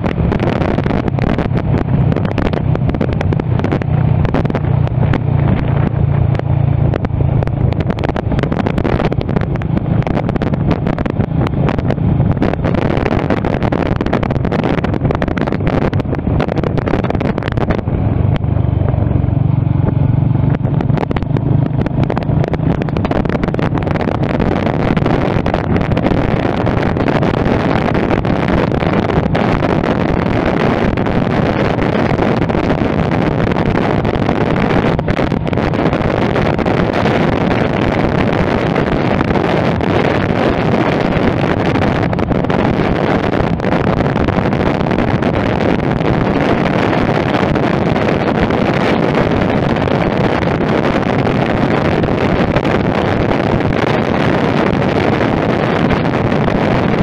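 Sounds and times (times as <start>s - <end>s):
motorcycle engine running: 0.0s - 57.0s
wind rush on microphone: 0.0s - 57.0s.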